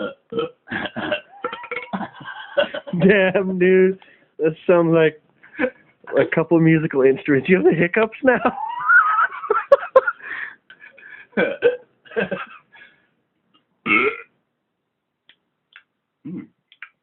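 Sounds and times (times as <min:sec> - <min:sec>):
man burping: 0:00.0 - 0:03.0, 0:11.4 - 0:11.8, 0:13.8 - 0:14.3, 0:16.2 - 0:16.6
man hiccupping: 0:00.0 - 0:03.0, 0:11.4 - 0:11.8, 0:13.9 - 0:14.3, 0:16.2 - 0:17.0.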